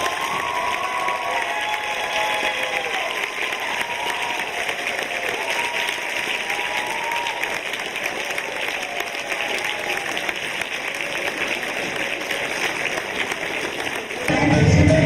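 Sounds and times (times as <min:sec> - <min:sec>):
audience applauding: 0:00.0 - 0:14.5.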